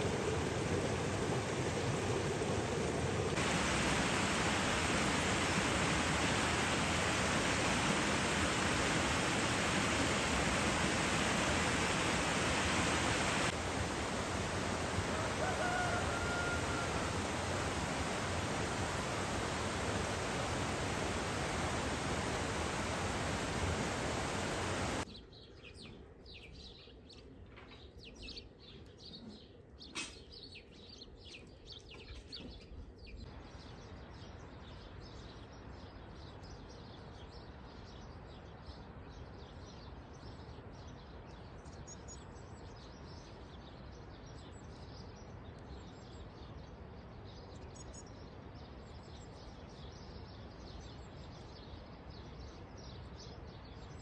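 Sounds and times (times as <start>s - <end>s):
outdoor hiss: 0.0s - 25.1s.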